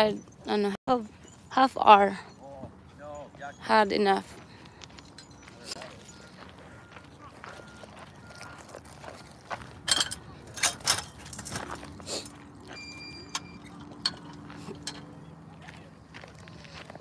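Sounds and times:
footsteps crunching on gravel: 4.2 - 10.5, 11.2 - 12.8, 13.8 - 17.0.

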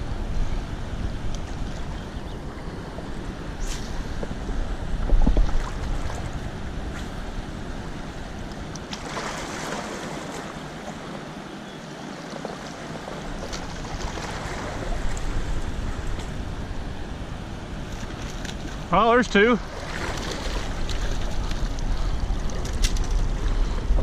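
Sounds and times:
wind buffeting microphone: 0.0 - 8.9, 19.6 - 24.0
fast river water rushing: 5.6 - 22.6.

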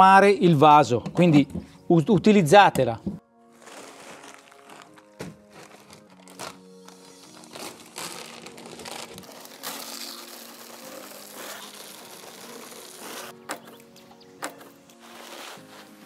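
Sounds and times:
plastic bag crinkling: 3.5 - 13.8.

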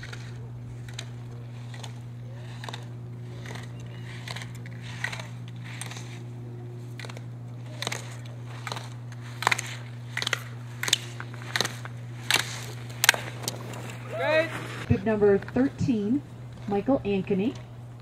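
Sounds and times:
steady low hum: 0.0 - 18.0
skis scraping on hard snow: 7.8 - 14.9.

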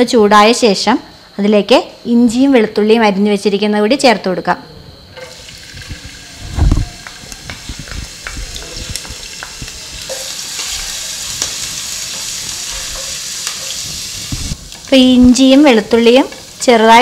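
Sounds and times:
garlic sizzling in hot oil: 5.2 - 17.0.

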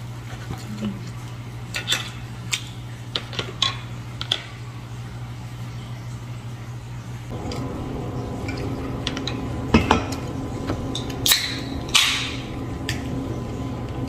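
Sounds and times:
dishes clinking: 8.4 - 10.3.

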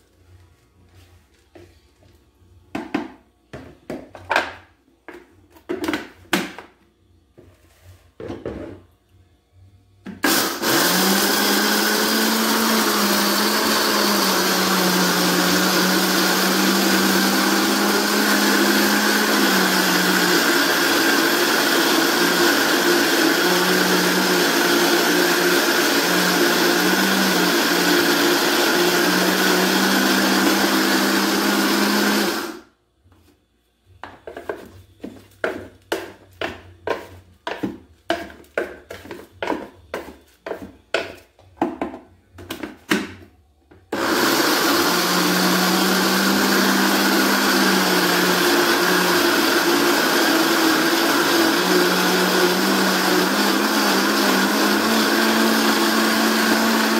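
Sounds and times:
blender motor grinding: 10.2 - 32.7, 43.9 - 56.9.

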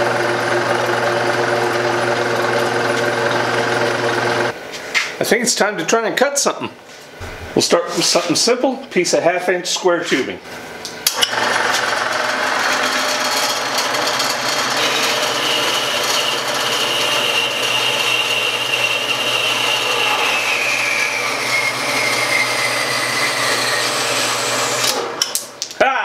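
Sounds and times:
bandsaw blade cutting metal whine: 0.0 - 4.5, 11.1 - 25.3
bandsaw motor hum: 0.0 - 4.6, 11.1 - 25.2.

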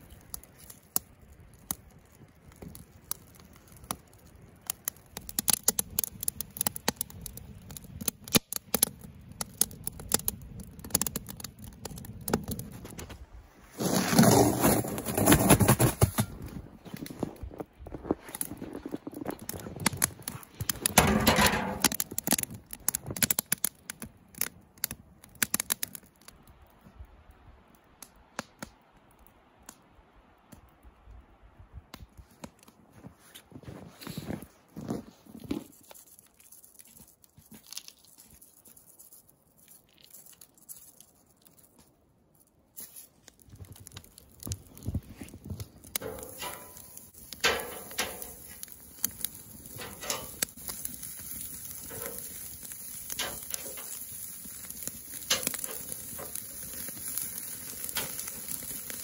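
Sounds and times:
fire crackling and popping: 0.0 - 59.0
crunching and scraping in snow: 12.6 - 21.8, 32.2 - 59.0.

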